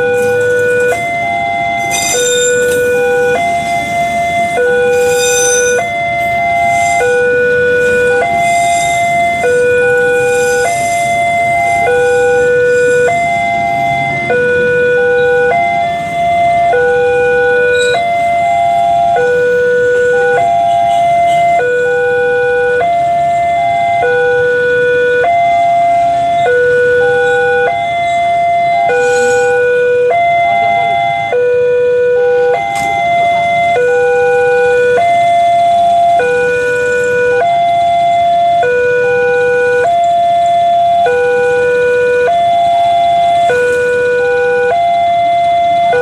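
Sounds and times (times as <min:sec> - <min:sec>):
passing train rumble: 0:00.0 - 0:24.4
level crossing warning alarm: 0:00.0 - 0:46.0.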